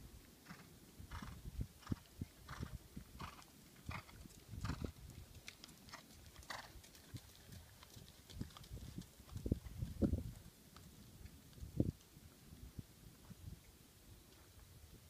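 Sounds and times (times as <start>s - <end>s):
horse hoofbeats on sand: 0.5s - 10.2s.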